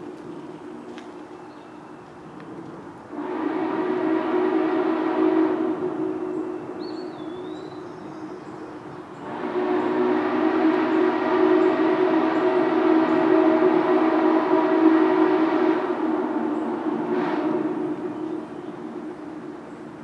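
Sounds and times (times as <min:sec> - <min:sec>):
steam locomotive whistle: 0:03.1 - 0:08.1, 0:09.2 - 0:18.9.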